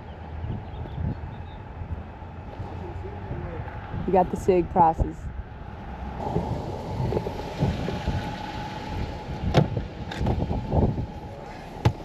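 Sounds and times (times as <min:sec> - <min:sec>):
microphone handling and wind noise: 0:00.4 - 0:04.3, 0:06.2 - 0:12.0
car door shutting: 0:09.4 - 0:10.9, 0:11.5 - 0:12.0
knocks and thumps: 0:09.5 - 0:10.4, 0:11.8 - 0:12.0.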